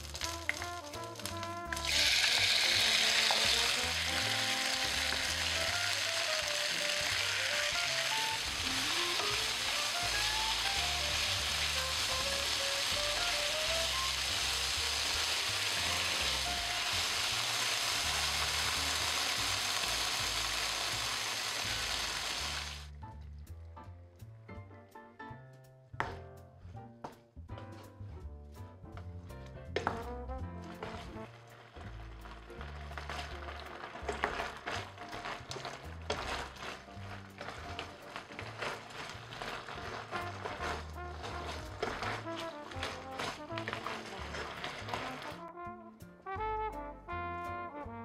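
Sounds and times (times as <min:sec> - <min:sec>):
chicken sizzling in hot oil: 0:00.0 - 0:22.9, 0:30.7 - 0:45.5
soft background music: 0:00.0 - 0:48.0.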